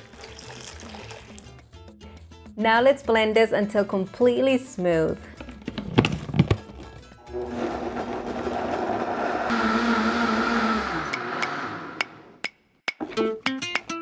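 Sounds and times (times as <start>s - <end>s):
blender whirring: 7.2s - 12.4s.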